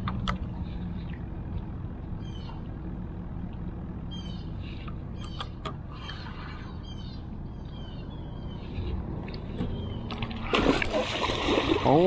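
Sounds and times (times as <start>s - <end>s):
birds chirping: 0.0s - 10.7s
loud splash in water: 10.5s - 11.9s.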